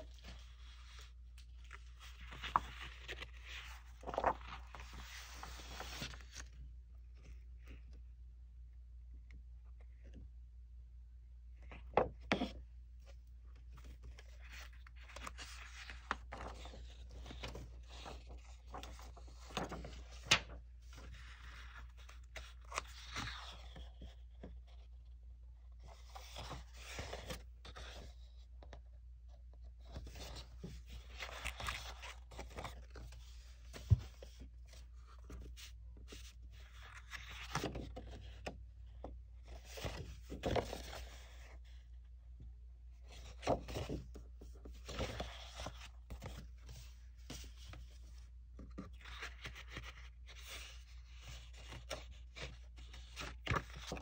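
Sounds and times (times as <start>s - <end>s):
paper and plastic rustling: 0.1s - 6.5s.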